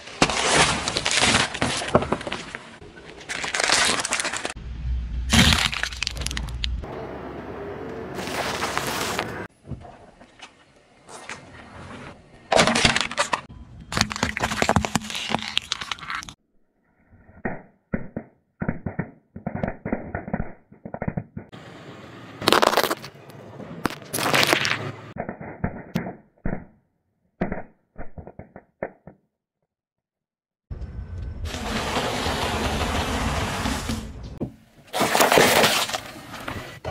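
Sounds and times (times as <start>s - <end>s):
tyre crushing small objects: 0.1s - 4.6s, 5.3s - 6.8s, 12.5s - 16.4s, 22.4s - 23.1s, 23.9s - 24.8s, 34.9s - 36.2s.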